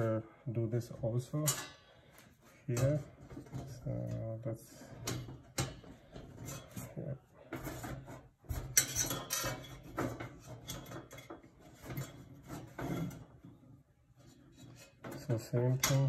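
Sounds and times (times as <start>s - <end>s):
metal clatter: 7.6s - 13.4s.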